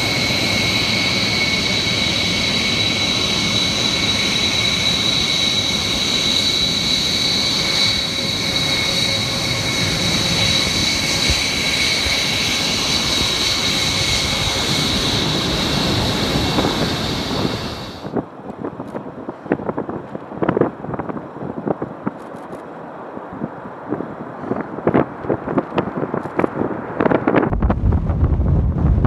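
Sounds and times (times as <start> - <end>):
jet engines whining: 0.0 - 18.2
wind noise on microphone: 0.0 - 29.0.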